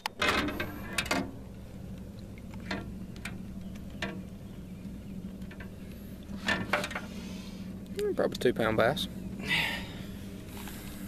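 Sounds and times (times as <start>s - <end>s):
light clicks and knocks on metal boat: 0.0s - 7.2s
steady low hum: 0.0s - 11.0s.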